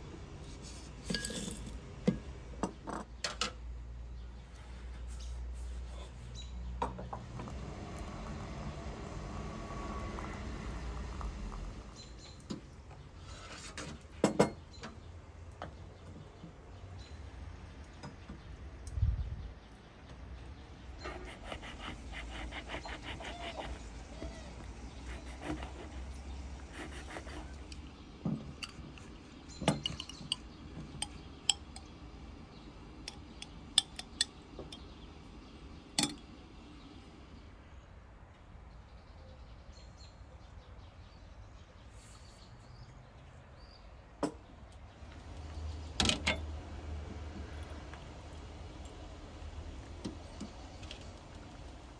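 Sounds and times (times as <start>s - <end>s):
glass teapot clinking: 1.1s - 1.7s
hot water pouring into teapot: 7.2s - 12.5s.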